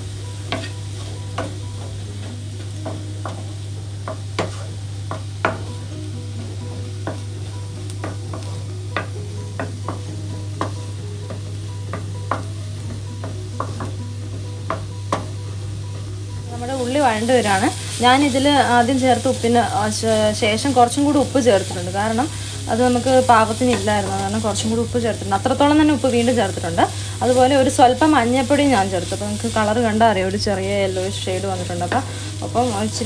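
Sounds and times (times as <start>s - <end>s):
onions sizzling: 0.0s - 33.0s
spatula scraping frying pan: 0.4s - 5.6s, 30.9s - 33.0s.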